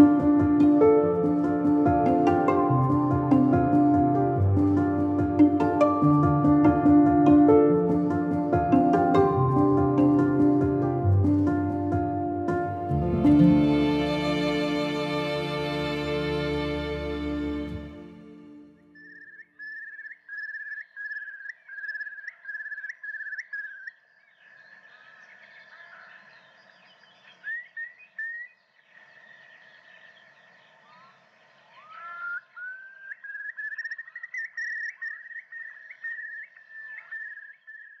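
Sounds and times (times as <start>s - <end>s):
faint bird chirps: 18.8s - 38.0s.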